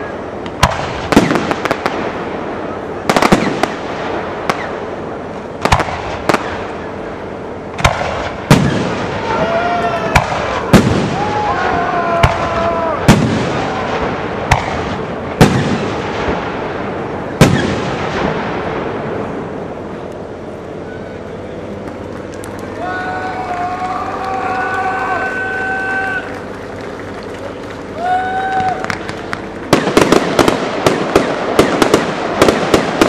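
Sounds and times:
firework shells bursting: 28.6s - 33.0s
rolling echo: 28.6s - 33.0s.

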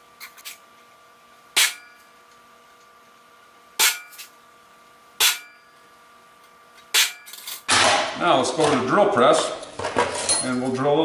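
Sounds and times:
hammer striking metal punch: 1.6s - 2.0s, 3.8s - 4.3s, 5.2s - 5.7s, 6.9s - 8.2s.

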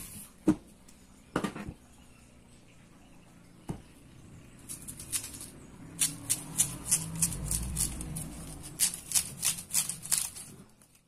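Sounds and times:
dry rasping tears of stalk: 6.0s - 11.0s.

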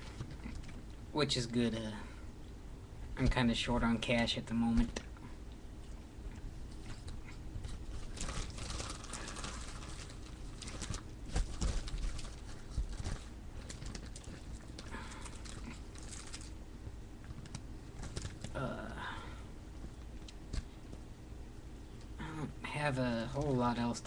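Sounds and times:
tobacco and packaging rustling: 6.7s - 16.6s, 17.2s - 18.6s.

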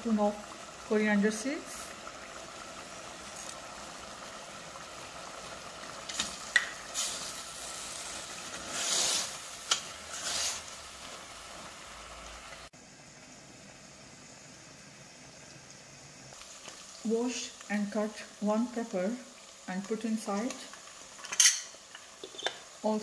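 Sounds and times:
meat sizzling in a pot: 0.0s - 23.0s
wooden spoon knocking and scraping pot: 21.3s - 22.6s.

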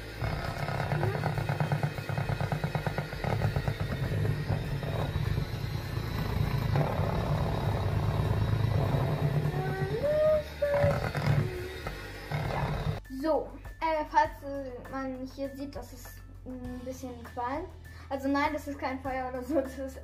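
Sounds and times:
electric hand mixer running: 0.0s - 13.0s
mixer beaters rattling: 0.0s - 13.0s.

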